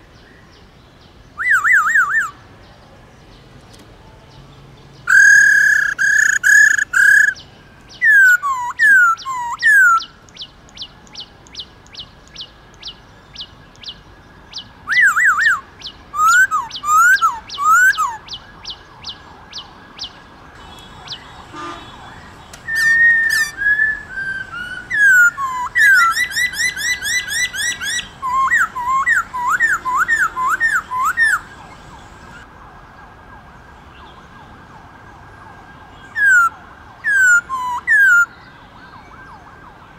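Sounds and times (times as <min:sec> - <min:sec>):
bird singing whistled phrases: 0:01.4 - 0:02.4, 0:05.1 - 0:10.9, 0:13.8 - 0:32.4.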